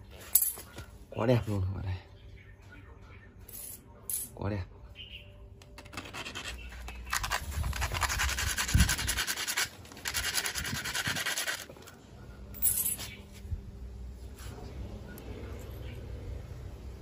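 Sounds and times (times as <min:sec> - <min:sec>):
sandpaper scraping wood: 0:06.0 - 0:11.7.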